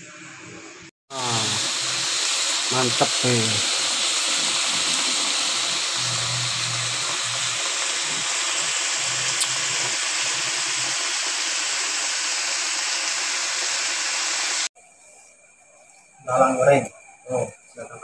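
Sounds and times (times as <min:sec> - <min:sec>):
oil sizzling: 0:01.1 - 0:14.8.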